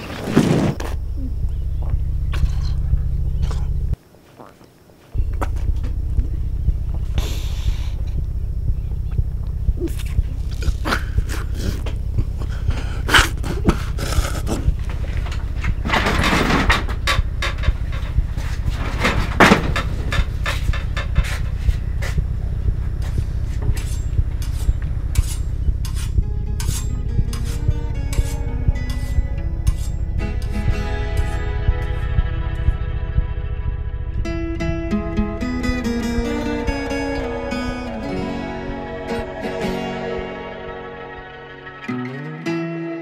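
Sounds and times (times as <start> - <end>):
pulsing bass drone music: 0.9 - 4.0, 5.2 - 42.6
person breathing heavily: 7.1 - 8.2, 9.8 - 14.8
high sustained musical tones: 19.8 - 43.0.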